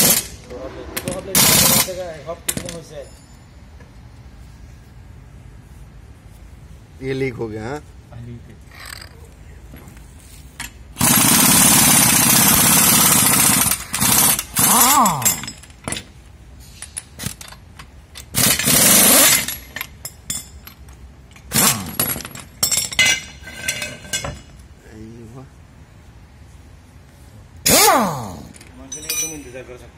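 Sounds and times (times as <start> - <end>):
pneumatic impact wrench hammering: 0.0 - 2.8, 10.6 - 24.5, 27.6 - 28.7.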